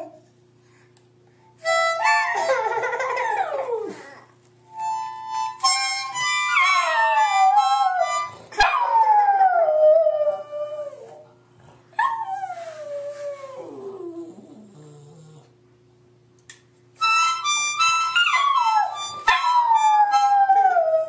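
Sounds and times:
harmonica chords: 0:01.6 - 0:02.8, 0:04.6 - 0:08.5, 0:17.0 - 0:20.4.

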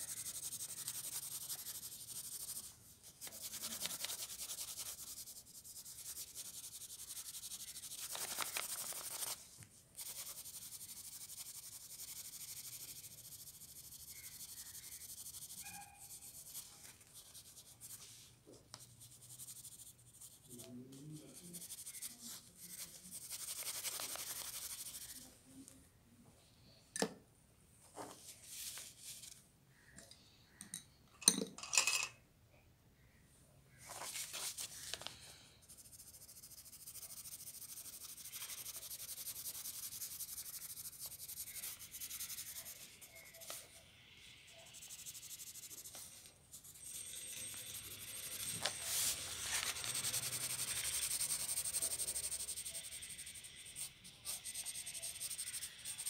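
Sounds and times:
pencil scratching on paper: 0:00.0 - 0:09.4, 0:10.0 - 0:25.3, 0:35.6 - 0:56.0.

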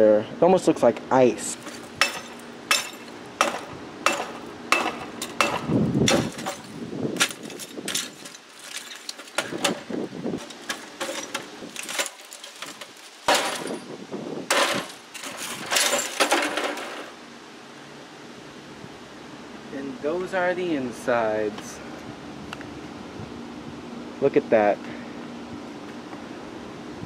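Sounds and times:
bat striking monitor: 0:01.6 - 0:07.5
glass shattering and clinking: 0:01.6 - 0:13.9, 0:14.5 - 0:17.1.

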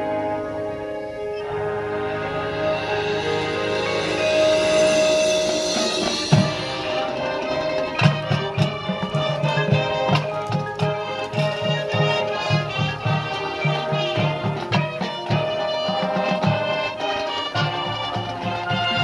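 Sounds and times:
marching band playing: 0:00.0 - 0:19.0
steady low drum beat: 0:01.6 - 0:15.4.

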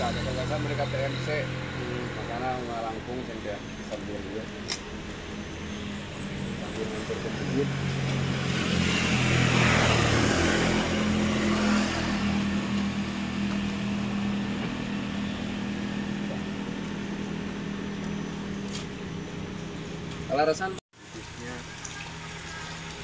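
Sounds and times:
vehicle engine humming: 0:00.0 - 0:23.0.

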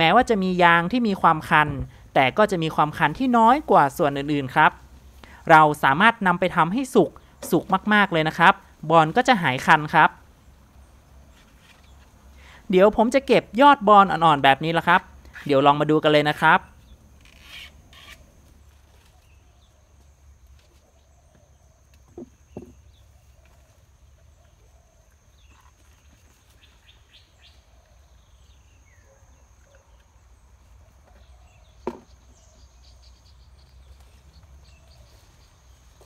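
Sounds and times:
faint bird chirps: 0:16.6 - 0:36.0.

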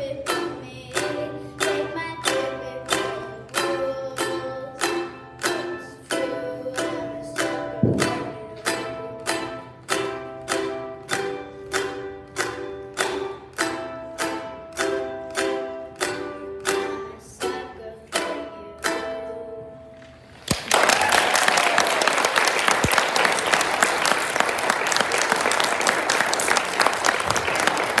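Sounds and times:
ukulele strumming chords: 0:00.0 - 0:20.4
audience applause: 0:20.5 - 0:28.0.

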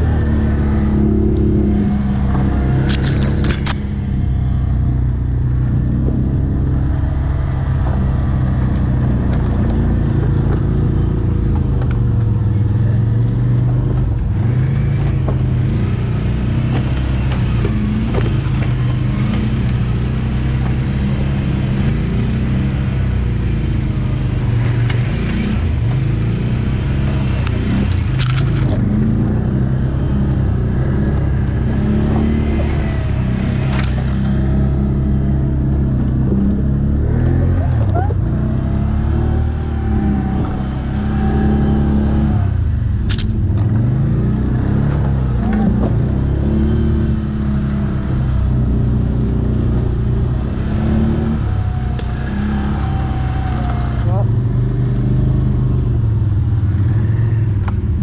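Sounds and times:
quad engine revving: 0:00.0 - 0:56.1
sharp clatter: 0:27.4 - 0:28.8.

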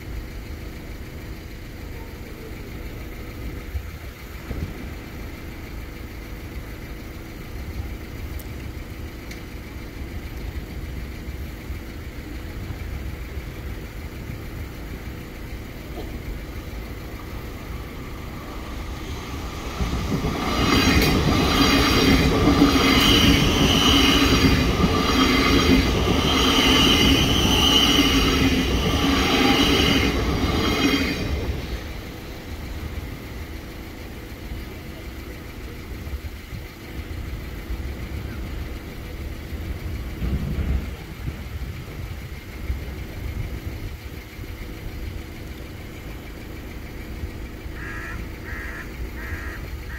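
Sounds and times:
electric train whine: 0:00.0 - 0:49.9
low steady rumble: 0:00.0 - 0:49.9
train wheels clacking on rail joints: 0:08.3 - 0:34.0.

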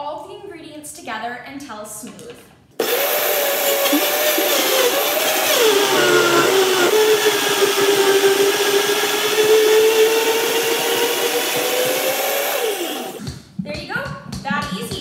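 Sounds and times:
blender running on high: 0:02.8 - 0:13.2.

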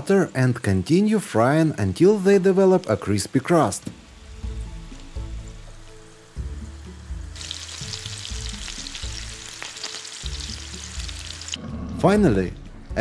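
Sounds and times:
food sizzling in oil: 0:01.6 - 0:11.6.

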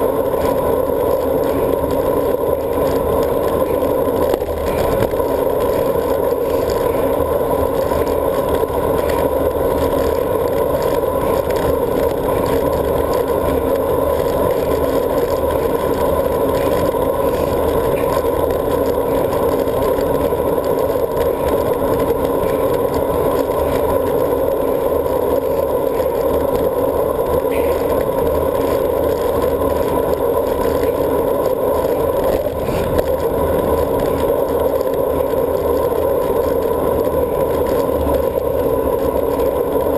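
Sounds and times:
bike tyres rolling on asphalt: 0:00.0 - 0:39.9.

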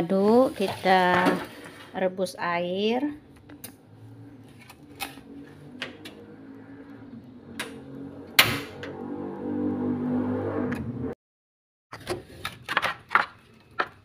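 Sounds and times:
gas burner hum: 0:02.7 - 0:09.1.

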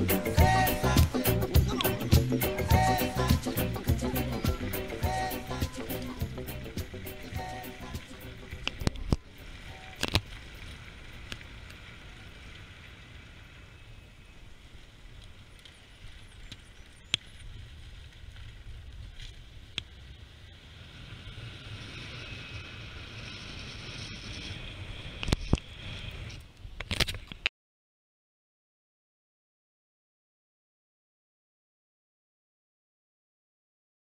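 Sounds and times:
wind hiss: 0:00.0 - 0:26.8.

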